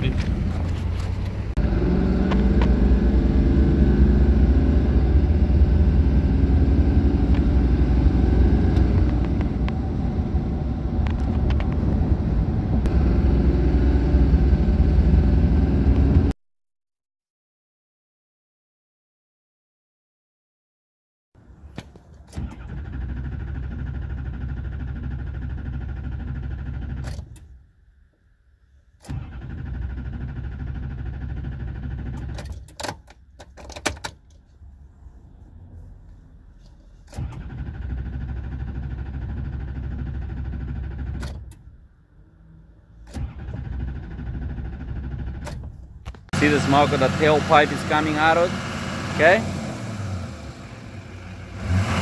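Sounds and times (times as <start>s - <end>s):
starter cranking diesel engine: 22.3s - 27.2s, 29.0s - 32.6s, 37.1s - 41.6s, 43.0s - 52.0s.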